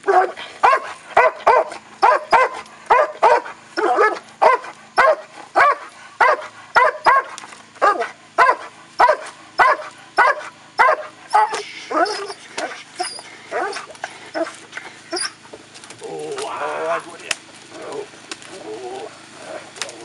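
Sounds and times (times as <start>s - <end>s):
dog barking: 0.0s - 15.4s.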